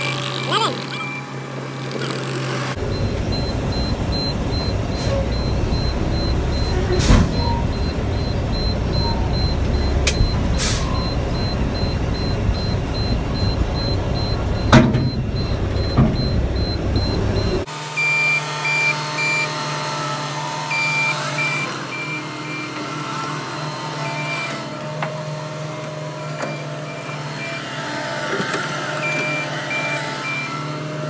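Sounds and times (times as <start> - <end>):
truck engine rumbling: 0.0 - 31.0
truck knocks and rattles: 2.8 - 17.6.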